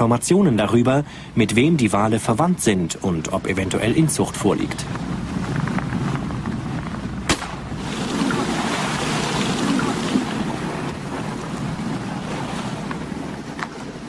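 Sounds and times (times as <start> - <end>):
wind and water rushing: 0.0 - 14.0
dart gun crack: 7.3 - 7.6.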